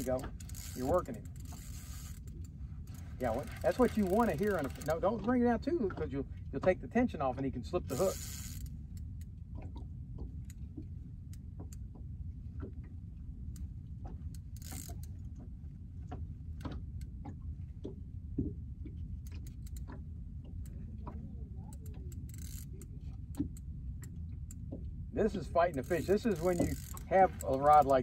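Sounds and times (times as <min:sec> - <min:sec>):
fishing reel clicking: 0:00.0 - 0:05.2, 0:07.9 - 0:09.3, 0:14.3 - 0:15.2, 0:19.3 - 0:20.0, 0:21.7 - 0:23.7, 0:25.4 - 0:28.0
steady low rumble: 0:00.0 - 0:28.0.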